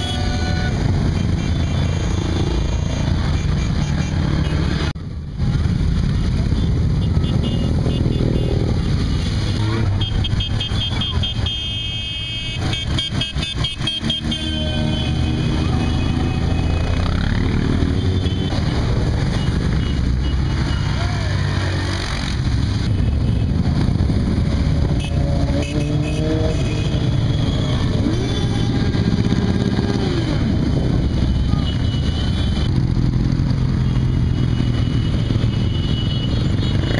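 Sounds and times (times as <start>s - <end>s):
motorcycle engines rumbling: 0.0s - 36.9s.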